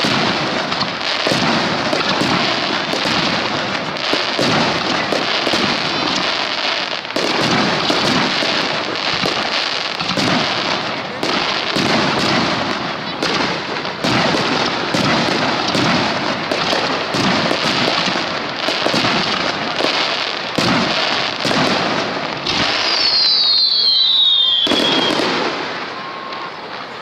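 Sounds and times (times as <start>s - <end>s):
fireworks crackling: 0.0s - 27.0s
high falling whistle: 22.8s - 25.2s, 25.8s - 26.8s.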